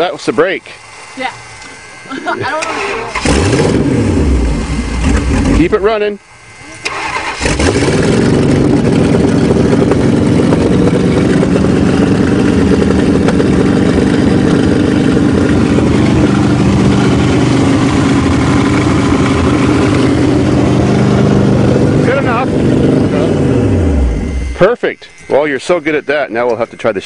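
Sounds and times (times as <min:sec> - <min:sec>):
car engine fast idle: 0:06.8 - 0:25.0.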